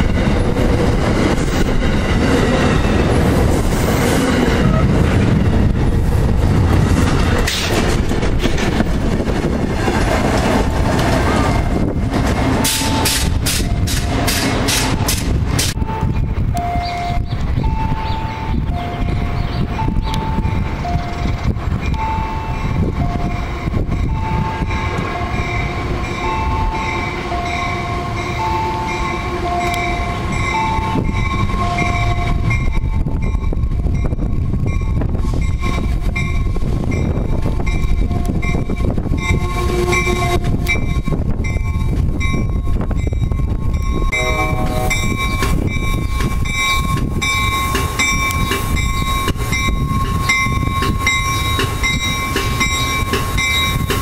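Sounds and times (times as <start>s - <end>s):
diesel locomotive engine rumble: 0.0s - 54.0s
locomotive bell ringing: 15.8s - 54.0s
locomotive horn blast: 28.9s - 30.1s, 39.3s - 40.7s, 44.1s - 45.5s
two-note warning tone: 44.1s - 46.1s.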